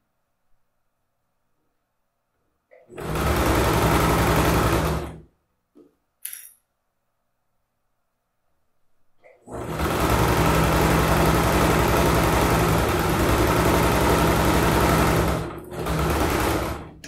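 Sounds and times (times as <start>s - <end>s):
sewing machine stitching: 2.7s - 5.3s, 9.2s - 17.0s.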